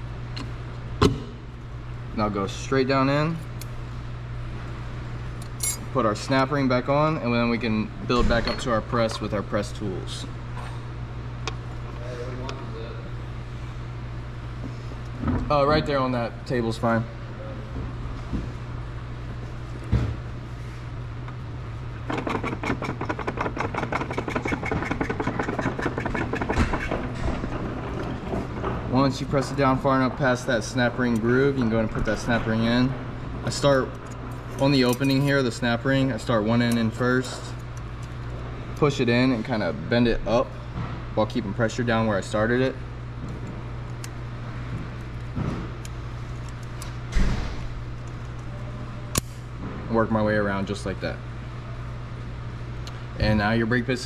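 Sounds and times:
steady low hum: 0.0 - 54.0
metal snap ring clicking and scraping: 5.4 - 5.9
hydraulic press humming: 21.2 - 35.4
fast clicking clatter: 22.1 - 28.8.

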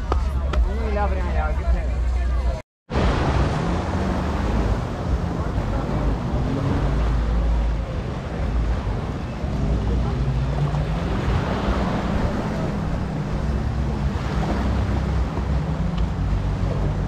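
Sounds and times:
voices of people: 0.0 - 2.6
distant boat engine drone: 2.9 - 17.0
small waves washing in: 2.9 - 17.0.

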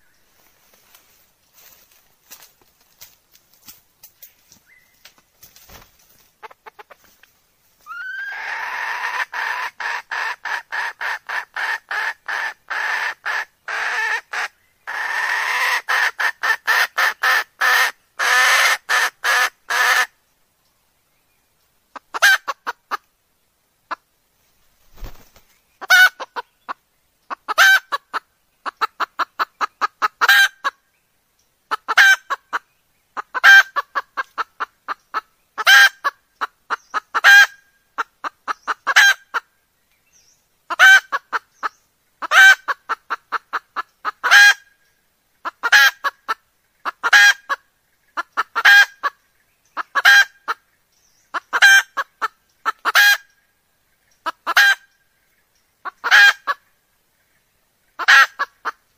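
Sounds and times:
hen clucking: 5.7 - 7.3, 7.9 - 20.1, 21.9 - 23.1, 25.0 - 30.8, 31.7 - 39.5, 40.7 - 44.7, 45.4 - 49.2, 49.8 - 50.6, 51.3 - 53.4, 54.1 - 54.9, 55.8 - 56.7, 58.0 - 58.8.

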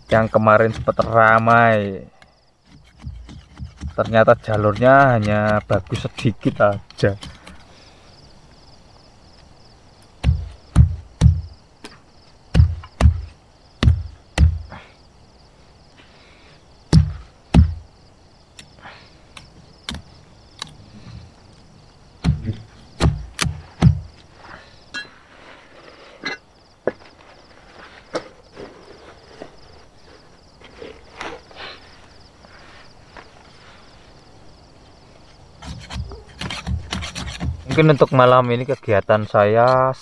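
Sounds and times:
knife chopping bamboo: 0.1 - 2.0, 2.7 - 7.6, 22.2 - 24.0, 35.6 - 38.8
faint cuts and ticks: 18.5 - 21.6.

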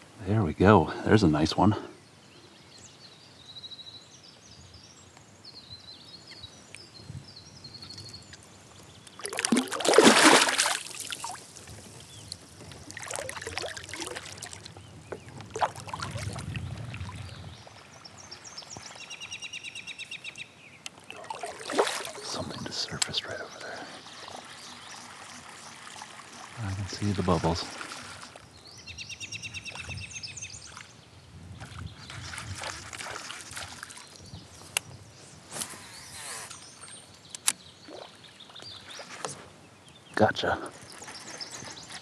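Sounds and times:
kayak paddle splashing water: 9.1 - 19.5, 20.9 - 28.6, 31.6 - 34.2
loud splash: 9.2 - 11.4, 21.1 - 22.5.

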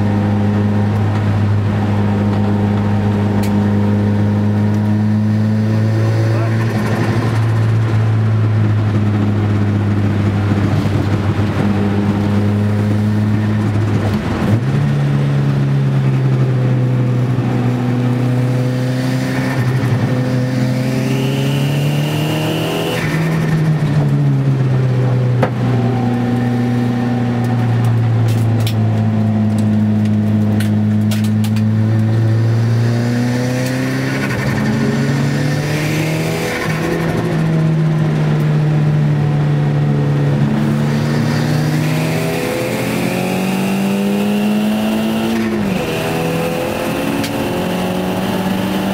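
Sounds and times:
car engine revving: 0.0 - 48.9.

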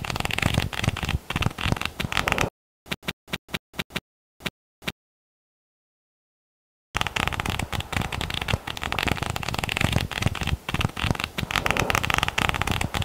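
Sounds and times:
paper pages riffling: 7.0 - 13.0.

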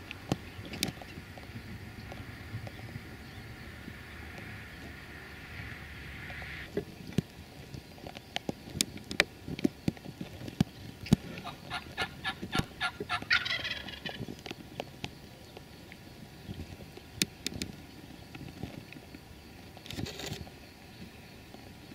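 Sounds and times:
turkey gobbling: 11.4 - 14.2
sharp clicks and snaps: 17.2 - 18.4.

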